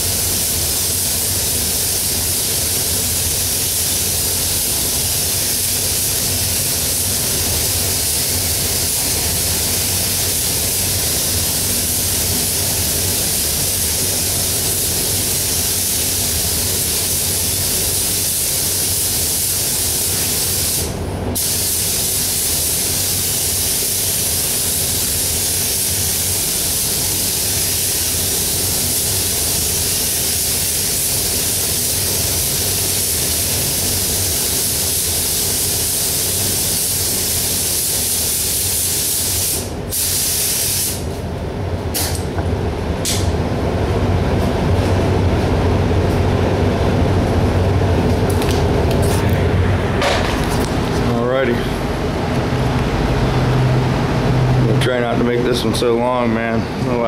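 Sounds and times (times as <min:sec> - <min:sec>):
spray gun hissing: 0:00.0 - 0:41.0
steady low hum: 0:00.0 - 0:57.0.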